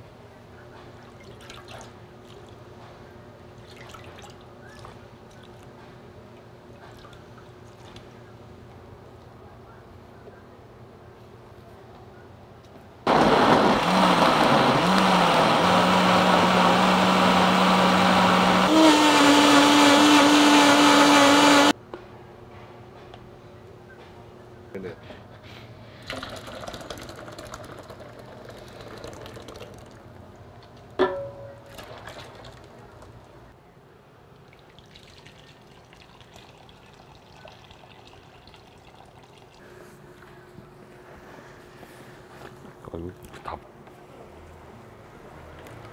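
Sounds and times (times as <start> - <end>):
liquid trickling and splashing: 3.6 - 5.7, 31.6 - 33.2, 34.3 - 39.6
blender motor blending: 13.1 - 21.8.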